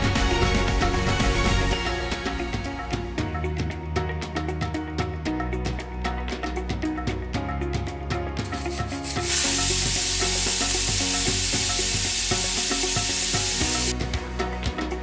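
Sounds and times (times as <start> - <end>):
pressure cooker whistle hissing: 8.6 - 13.9.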